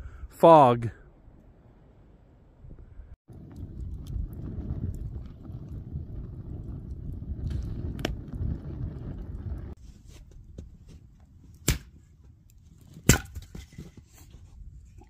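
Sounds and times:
wind buffeting microphone: 2.6 - 9.8.

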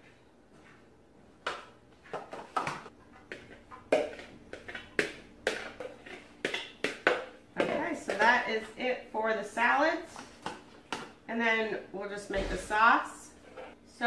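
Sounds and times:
spoon knocking and scraping bowl: 2.1 - 8.4.

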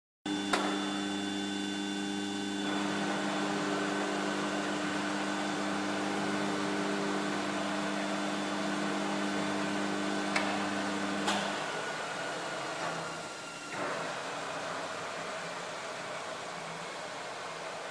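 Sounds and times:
lathe electric drive humming: 0.3 - 14.4.

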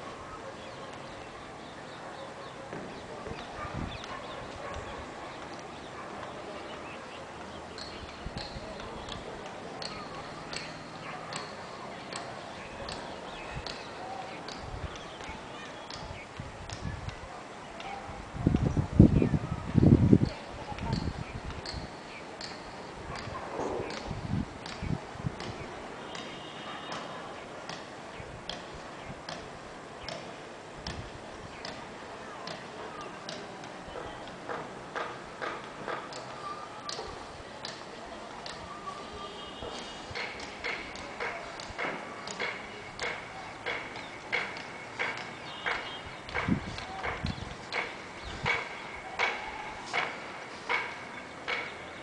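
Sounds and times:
bird chirping: 0.4 - 16.4, 30.0 - 30.4, 38.4 - 49.4.

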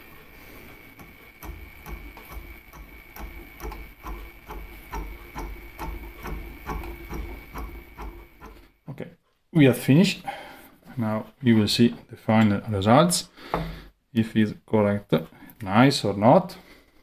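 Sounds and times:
milling machine whine: 0.0 - 8.8
cutting tool knocking: 1.0 - 8.7.

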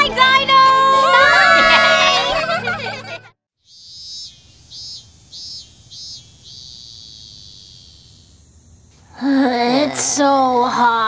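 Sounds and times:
high-pitched chirping: 3.7 - 8.5.

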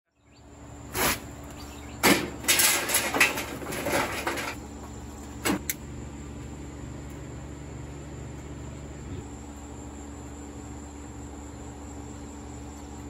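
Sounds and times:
steady low hum: 0.2 - 13.0
irregular clattering: 2.0 - 4.6.

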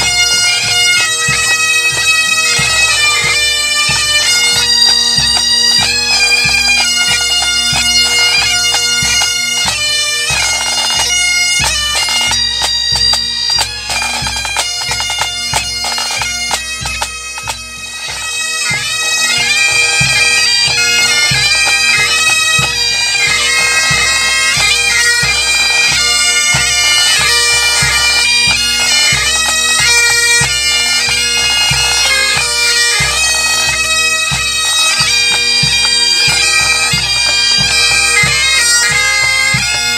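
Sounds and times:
bagpipes playing a tune: 0.0 - 39.9.

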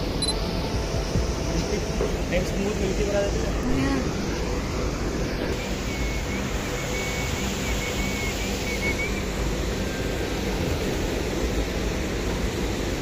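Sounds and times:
waterfall rushing over rocks: 0.0 - 13.0
faint wavering high tone: 3.6 - 10.7.

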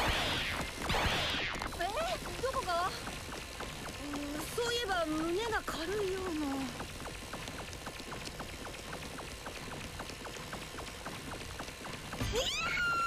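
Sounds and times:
background hiss: 0.0 - 13.0
fast even ticking: 0.0 - 13.0
person crying out: 12.2 - 13.0.

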